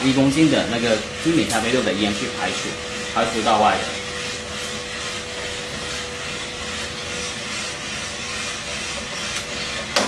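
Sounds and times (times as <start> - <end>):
burner and exhaust airflow rushing: 0.0 - 10.0.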